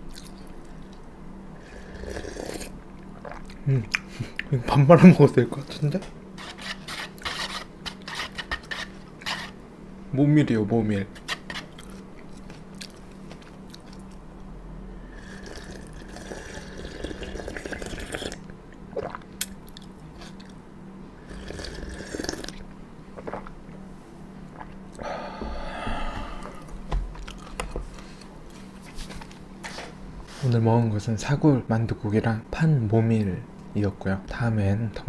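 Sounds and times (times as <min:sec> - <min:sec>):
chewing with small clicks: 0:00.1 - 0:01.0, 0:11.8 - 0:14.2, 0:19.0 - 0:20.6.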